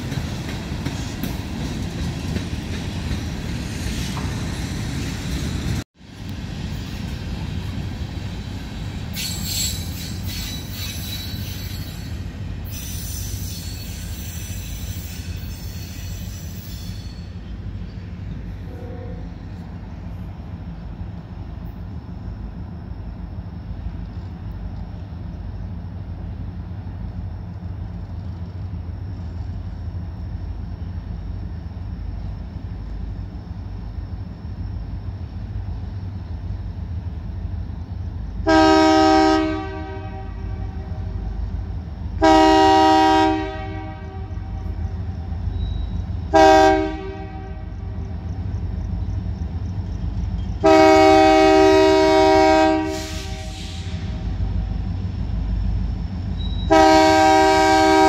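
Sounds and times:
train rumble: 0:00.0 - 0:58.0
locomotive air horn blasts: 0:38.4 - 0:41.1, 0:42.2 - 0:44.6, 0:46.3 - 0:48.0, 0:50.6 - 0:54.1, 0:56.7 - 0:58.0.

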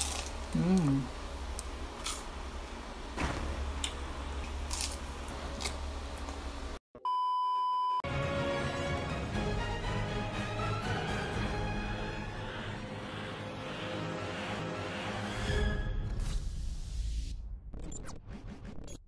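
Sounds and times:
crunching bites of fried food: 0:04.5 - 0:05.8
music: 0:08.0 - 0:16.5.

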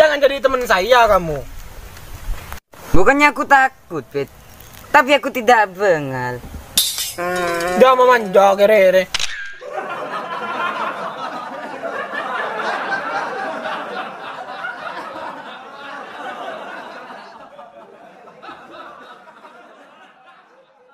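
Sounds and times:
crowd laughing: 0:09.6 - 0:20.9.

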